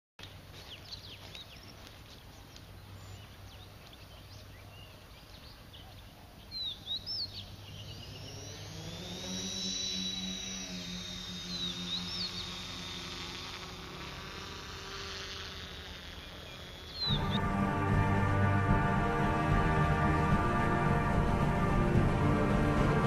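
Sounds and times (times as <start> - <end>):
small birds chirping: 0.2 - 17.5
drone motors whining: 6.6 - 23.0.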